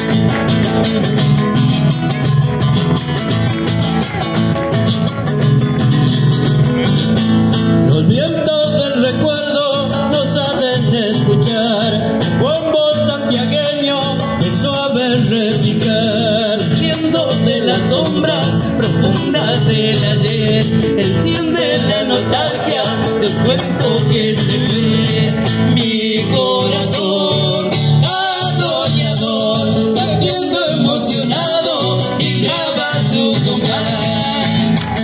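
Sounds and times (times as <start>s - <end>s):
acoustic guitar strumming: 0.0s - 35.0s
person singing: 7.9s - 35.0s.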